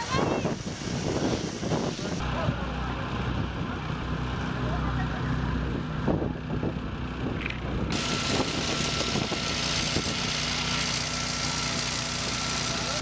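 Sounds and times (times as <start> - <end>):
loud steady hiss: 0.0 - 2.9, 7.9 - 13.0
engines idling: 2.1 - 13.0.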